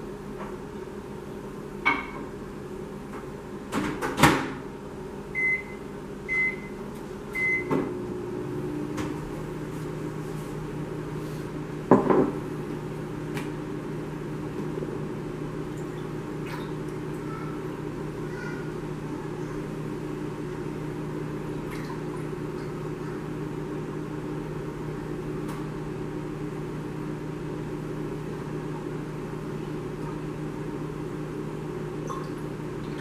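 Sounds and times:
microwave oven humming: 0.0 - 33.0
knocks on microwave: 3.7 - 4.6, 11.9 - 12.4.

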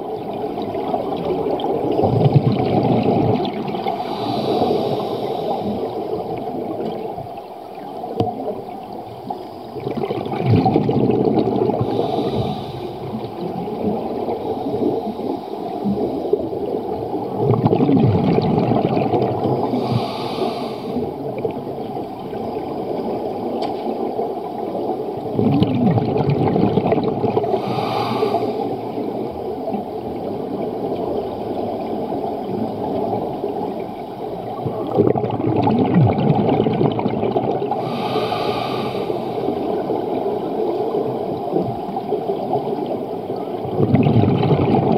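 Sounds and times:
gurgling exhaust bubbles: 0.6 - 4.0, 9.8 - 14.4, 16.5 - 19.8, 25.3 - 27.7, 34.5 - 37.9, 43.5 - 44.9
regulator hissing on inhale: 3.9 - 6.2, 11.8 - 13.4, 14.4 - 16.3, 19.6 - 21.1, 27.4 - 29.3, 37.8 - 40.0.

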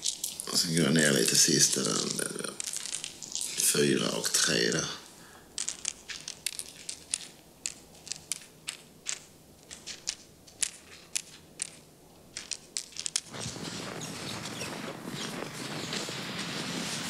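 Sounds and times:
pills clicking on a table: 5.6 - 11.8, 12.4 - 13.3.

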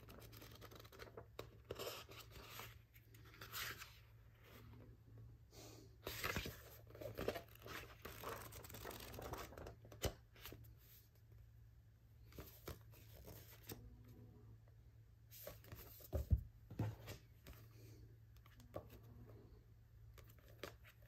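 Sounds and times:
book pages rustling: 0.0 - 4.7, 6.0 - 11.0.

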